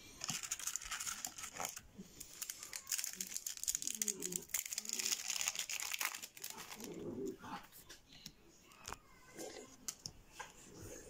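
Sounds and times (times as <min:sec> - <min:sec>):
foil wrapper crinkling: 0:00.2 - 0:07.0.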